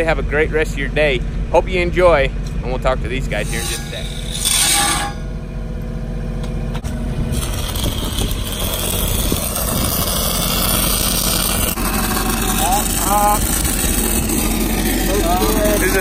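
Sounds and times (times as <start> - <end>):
welder engine running: 2.4 - 16.0
welding arc crackling: 6.8 - 16.0.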